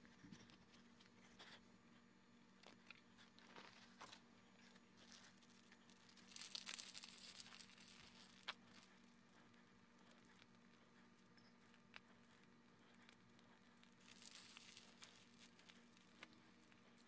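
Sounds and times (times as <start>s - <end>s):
whipped cream hissing: 12.8s - 17.0s.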